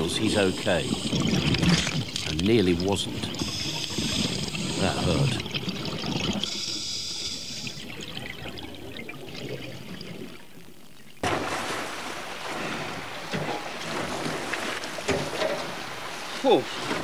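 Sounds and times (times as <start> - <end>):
choppy water splashing: 0.0 - 6.8, 7.4 - 17.0
muffled underwater crackling: 0.0 - 11.2.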